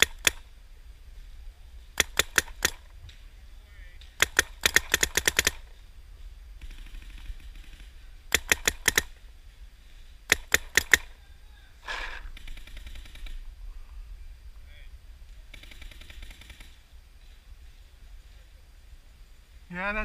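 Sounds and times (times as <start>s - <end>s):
paintball marker firing: 0.0s - 0.5s, 2.0s - 3.2s, 4.0s - 5.8s, 6.6s - 9.2s, 10.3s - 11.2s.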